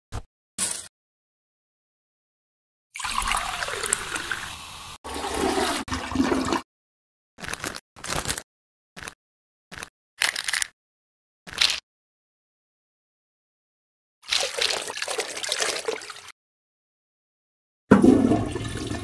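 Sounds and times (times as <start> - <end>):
toilet flushing: 3.0 - 6.6, 17.9 - 19.0.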